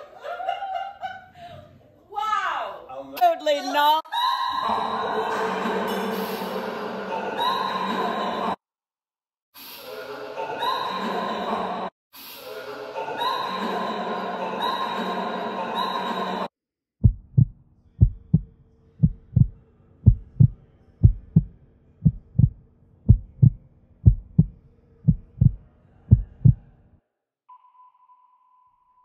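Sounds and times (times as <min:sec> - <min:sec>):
heartbeat double thumps: 0:17.0 - 0:26.6.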